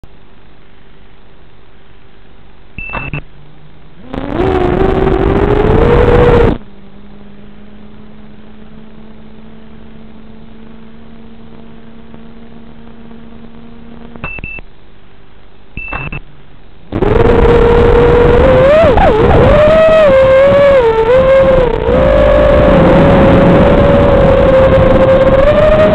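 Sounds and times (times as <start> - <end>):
short electronic beeps: 2.8 - 3.3, 14.2 - 14.7, 15.8 - 16.2
drone motors whining: 4.0 - 14.4, 16.9 - 25.9.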